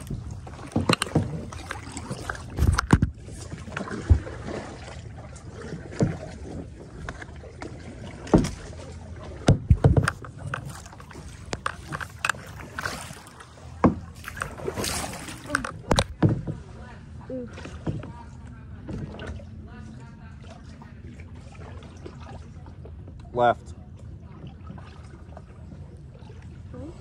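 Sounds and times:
paddle knocking against hull: 0:00.0 - 0:16.9, 0:17.6 - 0:19.4
paddle strokes in water: 0:00.0 - 0:27.0.

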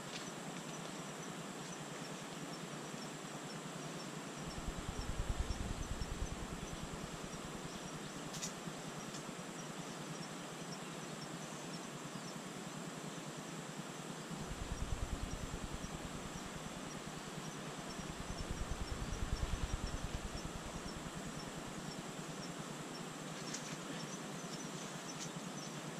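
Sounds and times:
steady hiss: 0:00.0 - 0:10.8, 0:11.5 - 0:25.9
insect chirping: 0:01.0 - 0:12.5, 0:13.1 - 0:23.2
wind buffeting microphone: 0:04.5 - 0:07.7, 0:14.4 - 0:17.1, 0:17.9 - 0:21.8.

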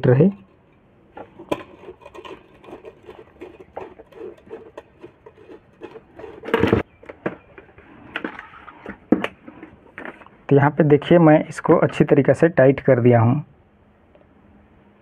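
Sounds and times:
metal clicks and scrapes of nut: 0:00.3 - 0:06.8.

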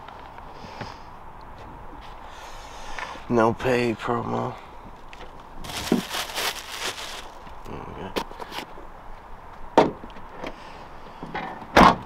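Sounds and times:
rustle: 0:04.6 - 0:09.3.

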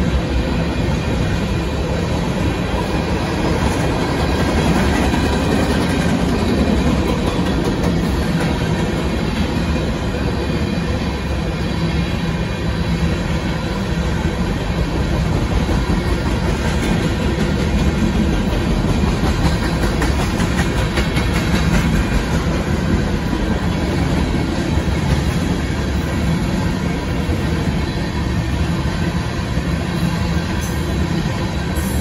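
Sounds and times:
train wheels rumbling on rail: 0:00.0 - 0:32.0
wheels clicking over rail joints: 0:03.3 - 0:09.8, 0:15.2 - 0:27.7.

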